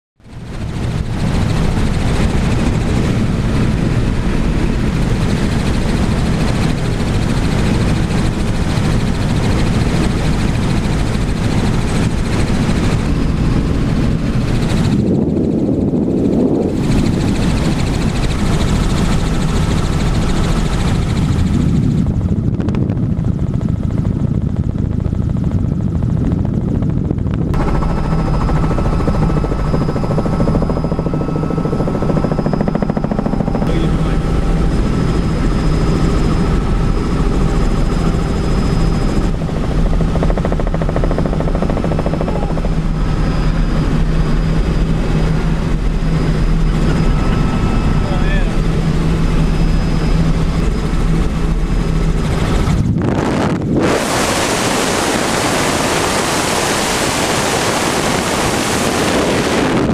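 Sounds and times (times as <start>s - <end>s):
helicopter rotor and engine drone: 0.2s - 59.9s
thin steady whine: 27.4s - 59.9s.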